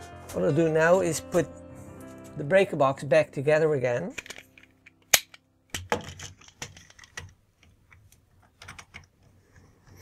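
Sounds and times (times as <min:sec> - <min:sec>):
screwdriver and plastic clicks: 0:04.2 - 0:09.2.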